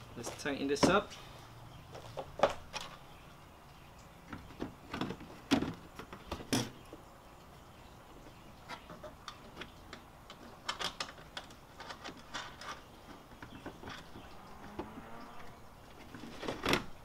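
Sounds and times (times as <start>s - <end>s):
clicks and knocks of car parts: 4.2s - 6.8s, 8.7s - 15.0s.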